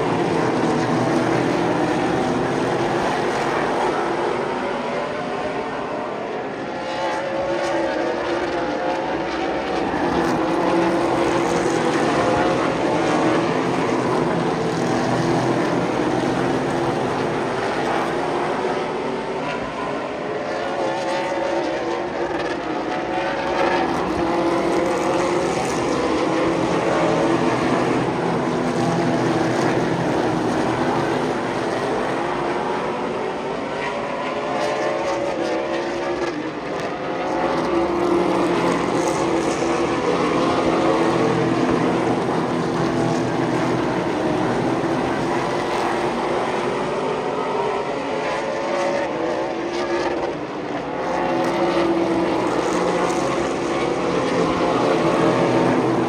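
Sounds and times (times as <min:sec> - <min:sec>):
race car engines: 0:00.0 - 0:56.0.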